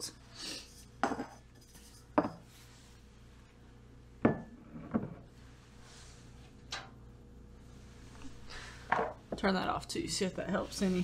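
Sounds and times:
bottles knocking on countertop: 0:04.2 - 0:05.2, 0:08.9 - 0:09.2.

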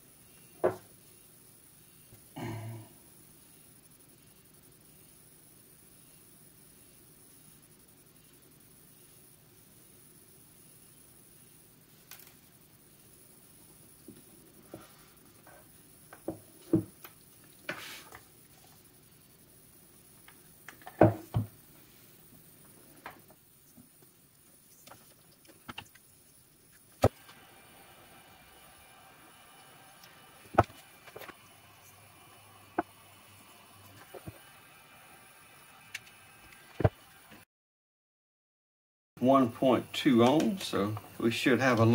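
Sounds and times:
knocks on wooden workbench: 0:00.6 - 0:00.8, 0:21.0 - 0:21.5
hot-air gun fan whirring: 0:26.9 - 0:37.4, 0:39.2 - 0:41.9.

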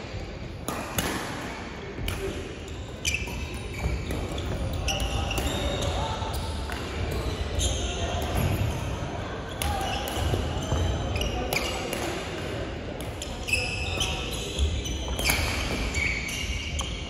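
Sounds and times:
rackets hitting shuttlecock: 0:00.6 - 0:02.4
shoes squeaking on floor: 0:03.0 - 0:06.6, 0:13.2 - 0:17.0.

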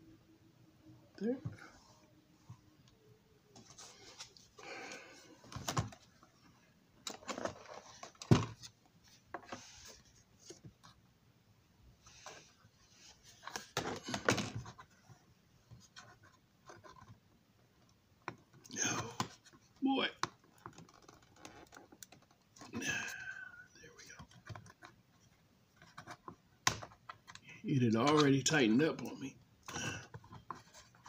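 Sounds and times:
soft rustles: 0:03.5 - 0:11.0.

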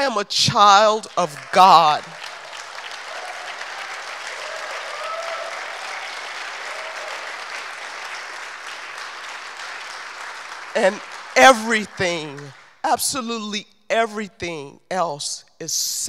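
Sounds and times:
audience applauding: 0:00.8 - 0:12.8.

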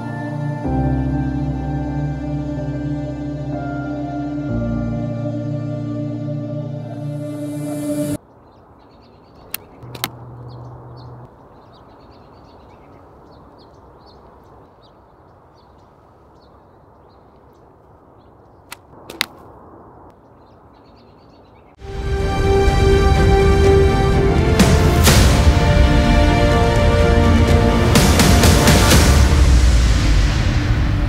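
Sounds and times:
small birds chirping: 0:08.2 - 0:21.8
slingshot shots snapping: 0:18.7 - 0:19.5.

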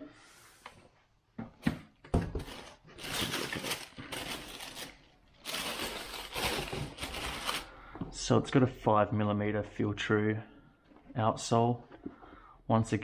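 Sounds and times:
tissue paper rustling: 0:02.4 - 0:07.7.

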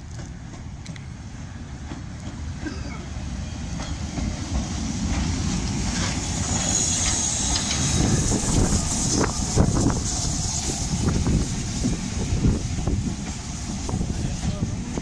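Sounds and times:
train wheels rumbling on rails: 0:00.0 - 0:15.0
steam hissing: 0:03.2 - 0:15.0.

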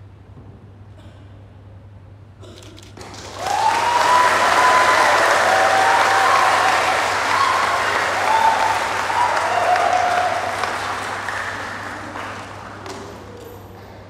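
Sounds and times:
audience clapping: 0:03.0 - 0:13.4
drawn-out cheers: 0:03.3 - 0:11.8.

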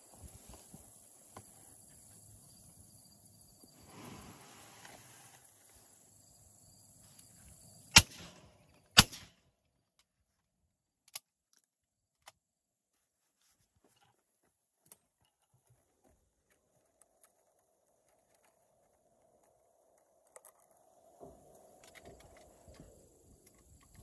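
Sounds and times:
shotgun shots: 0:07.9 - 0:09.4.

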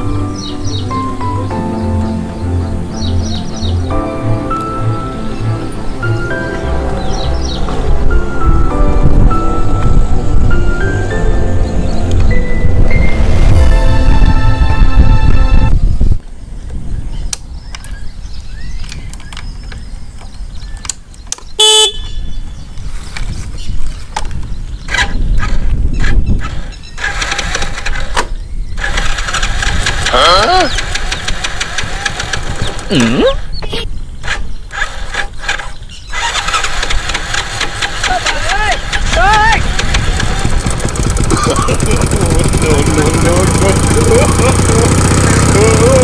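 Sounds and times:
motorcycle horn beep: 0:21.6 - 0:22.4
motorcycle engine revving: 0:24.8 - 0:33.6, 0:34.2 - 0:46.0.

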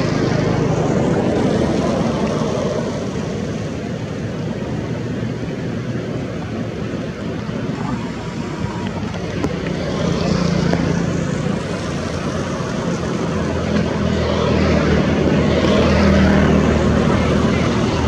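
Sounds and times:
engine drone: 0:00.0 - 0:18.0.

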